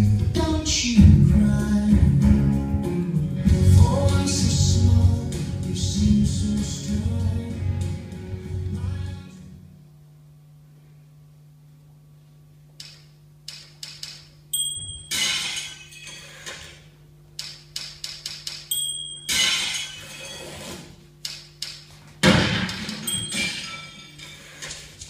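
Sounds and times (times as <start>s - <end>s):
steady low hum: 0.0s - 25.0s
crashes and clinks: 14.6s - 16.5s, 18.7s - 20.5s, 22.9s - 24.7s.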